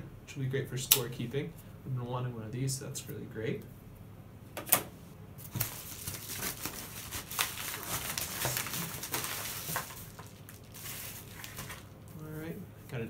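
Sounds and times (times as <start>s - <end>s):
packaging crinkling and rustling: 5.4s - 12.3s.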